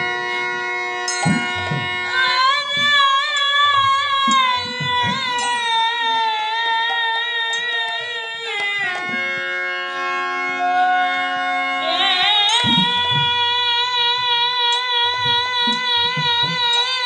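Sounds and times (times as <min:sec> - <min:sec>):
harmonium: 0:00.0 - 0:17.0
bamboo flute: 0:01.1 - 0:09.8, 0:10.4 - 0:17.0
woman singing with vibrato: 0:02.0 - 0:09.2, 0:10.6 - 0:17.0.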